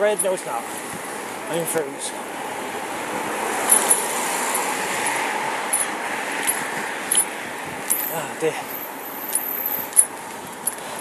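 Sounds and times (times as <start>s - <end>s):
tyre noise on road: 0.0s - 11.0s
wind rushing on microphone: 0.6s - 9.0s.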